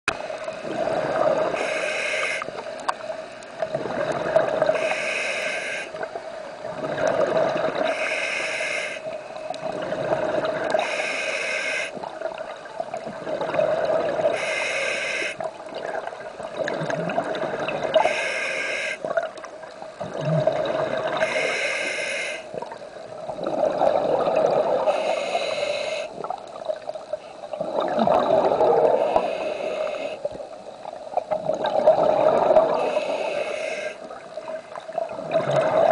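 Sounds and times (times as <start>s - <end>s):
underwater bubbling and gurgling: 0.1s - 35.9s
diver breathing through regulator: 1.2s - 2.5s, 4.7s - 6.0s, 7.8s - 9.1s, 10.7s - 12.0s, 14.2s - 15.4s, 17.9s - 19.1s, 21.2s - 22.5s, 24.8s - 26.2s, 28.8s - 30.3s, 32.5s - 34.1s.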